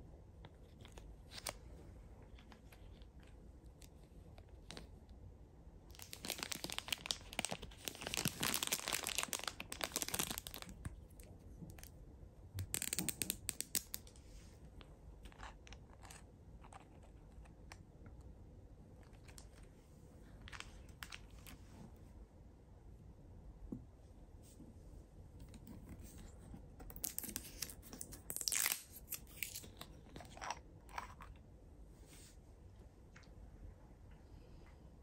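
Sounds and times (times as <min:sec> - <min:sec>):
plastic packaging crinkling: 0:05.9 - 0:10.9.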